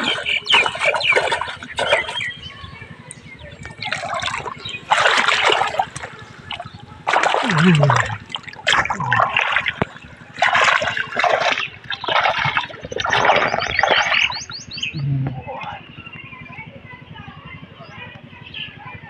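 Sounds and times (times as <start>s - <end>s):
fish splashing in water: 0.0s - 2.4s, 3.6s - 14.4s
water trickling and sloshing: 0.0s - 2.4s, 3.2s - 14.4s.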